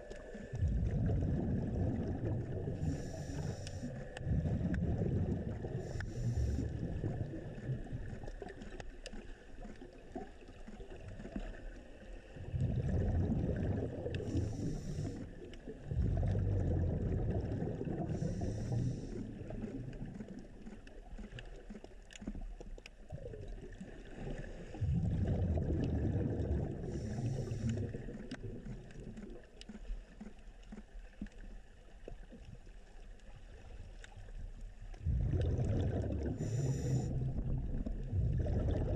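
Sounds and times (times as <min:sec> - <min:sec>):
underwater bubbling rumble: 0:00.0 - 0:38.9
short underwater hisses: 0:36.2 - 0:37.2.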